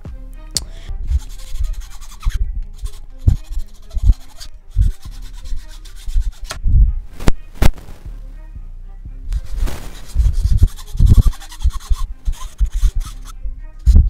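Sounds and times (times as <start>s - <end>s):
plastic scraping on metal file: 9.5s - 14.0s.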